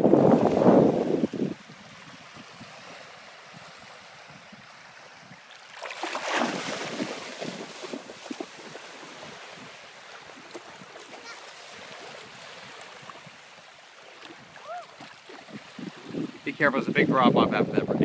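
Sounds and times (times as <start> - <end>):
wind: 0.0 - 18.0
water washing: 5.7 - 13.3
dog splashing through water: 5.8 - 8.5.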